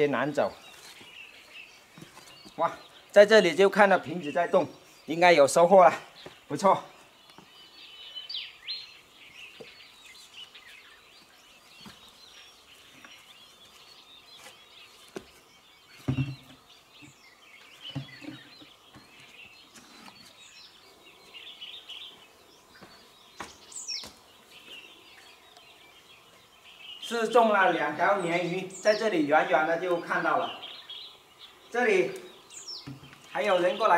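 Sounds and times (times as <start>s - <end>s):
wild birds chirping: 0.0s - 33.9s
knocks and scuffs on rock: 22.8s - 24.2s.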